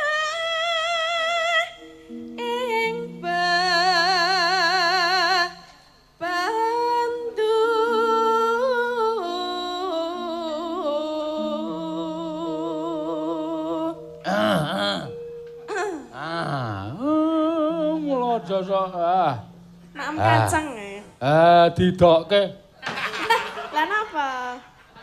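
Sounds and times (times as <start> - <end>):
person singing with vibrato: 0.0 - 21.5
sustained accompaniment notes: 1.0 - 7.3, 9.5 - 22.5.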